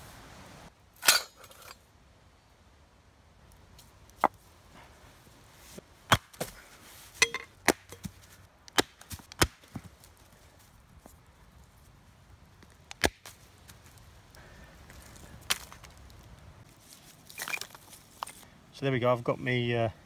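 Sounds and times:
machete chopping wood: 6.1 - 6.6, 7.6 - 8.0, 8.7 - 9.8, 12.9 - 13.3.

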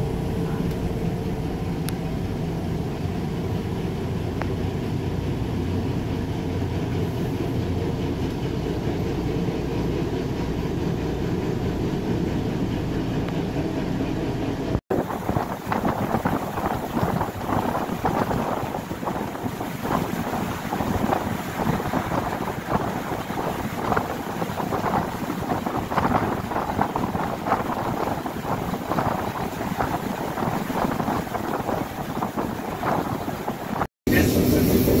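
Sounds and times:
diesel engine drone: 0.0 - 24.8
wind buffeting microphone: 14.8 - 35.0.

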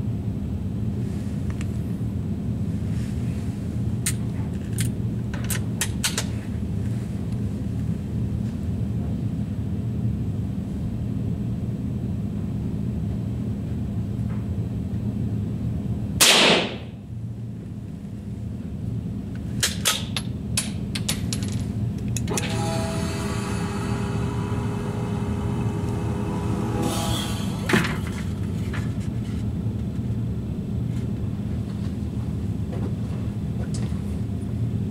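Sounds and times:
steady low hum: 0.0 - 34.9
rifle shot: 16.2 - 16.9.

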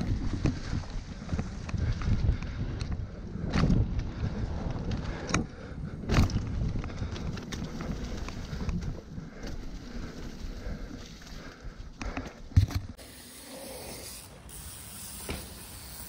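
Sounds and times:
bike knocks and rattles: 0.0 - 10.4
bike tyre rumble on dirt: 0.0 - 16.0.

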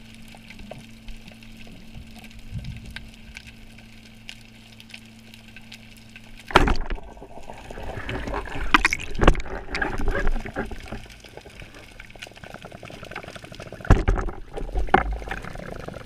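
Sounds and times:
low steady hum: 0.0 - 16.0
speargun shot underwater: 6.5 - 7.3
churning water: 6.5 - 16.0.

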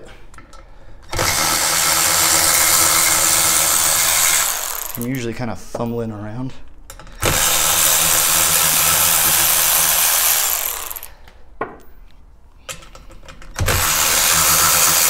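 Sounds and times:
electric ratchet spinning bolts: 1.1 - 5.1, 7.2 - 11.1, 13.5 - 15.0.

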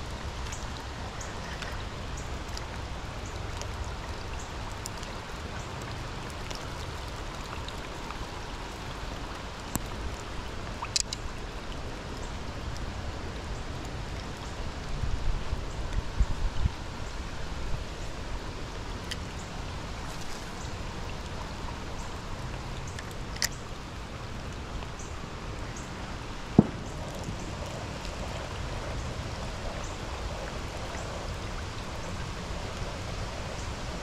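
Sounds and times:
raindrop ticks: 0.0 - 11.4, 19.0 - 23.7
steady rain: 0.0 - 34.0.

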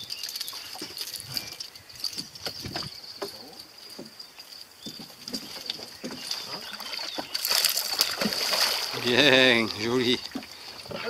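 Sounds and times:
water lapping against boat: 4.9 - 11.0
fish splashing at surface: 6.2 - 9.7.

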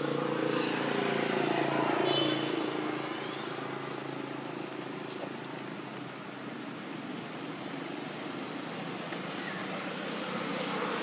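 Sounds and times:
steady outdoor rush: 0.0 - 11.0.

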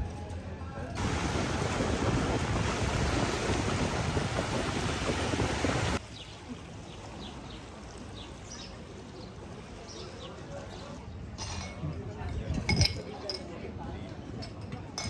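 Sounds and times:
wind buffeting microphone: 1.0 - 6.0.

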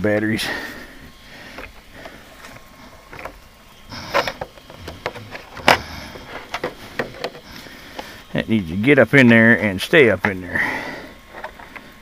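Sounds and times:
small clicks and knocks from handling: 11.3 - 11.9.

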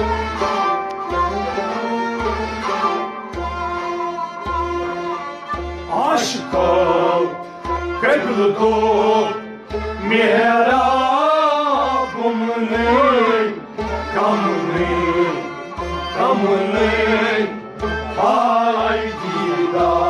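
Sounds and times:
harmonium drone: 0.0 - 20.0
man singing: 5.9 - 7.4, 8.0 - 20.0.

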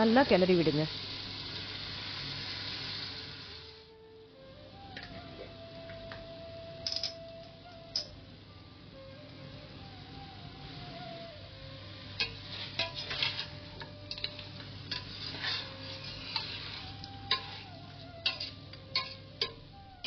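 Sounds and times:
metal spoon scraping pot: 12.2 - 19.6.

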